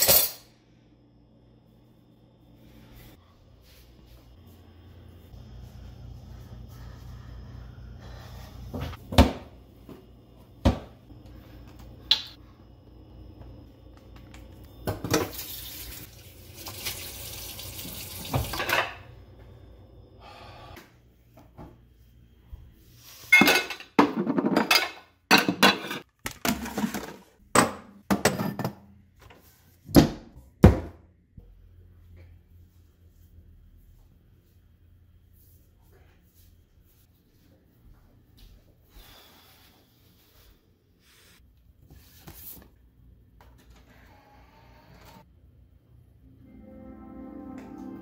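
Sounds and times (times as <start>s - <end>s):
dishes clattering in a sink: 18.3s - 19.1s, 23.3s - 28.9s.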